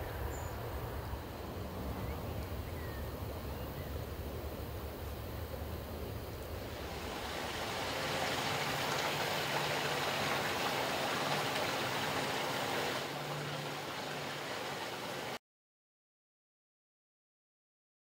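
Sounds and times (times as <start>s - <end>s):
flowing water rushing: 6.3s - 15.4s.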